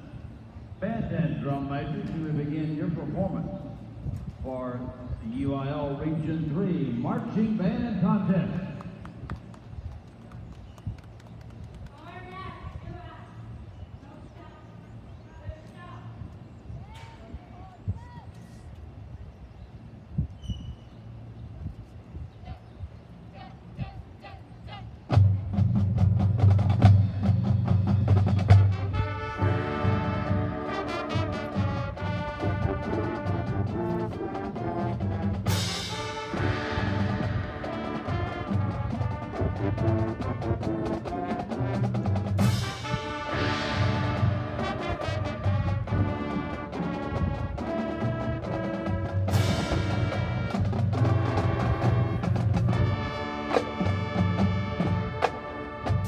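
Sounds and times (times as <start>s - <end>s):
marching band percussion: 25.1s - 56.0s
wind instruments holding chords: 25.2s - 56.0s.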